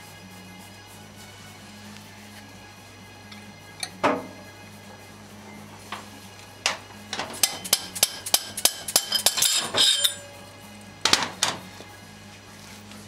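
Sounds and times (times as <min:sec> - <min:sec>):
metal scraping clatter: 0:06.6 - 0:10.5.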